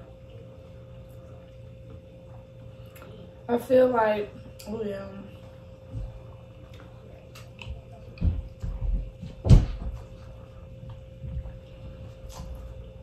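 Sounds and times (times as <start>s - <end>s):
chewing and mouth sounds: 6.1s - 8.8s, 10.6s - 13.0s.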